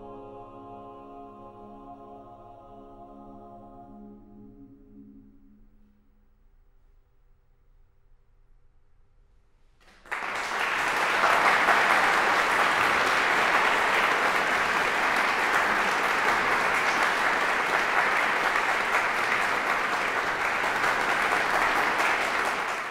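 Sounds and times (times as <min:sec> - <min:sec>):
audience applause: 0:09.8 - 0:22.9.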